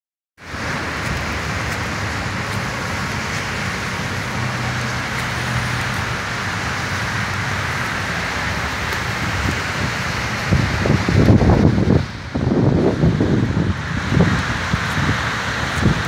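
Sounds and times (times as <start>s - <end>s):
cars driving on wet road: 0.4s - 16.0s.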